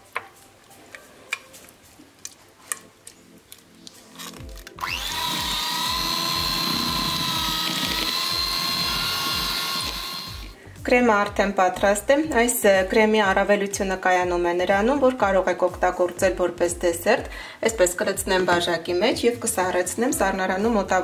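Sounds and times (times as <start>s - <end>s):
electric hand mixer whining: 4.8s - 10.6s.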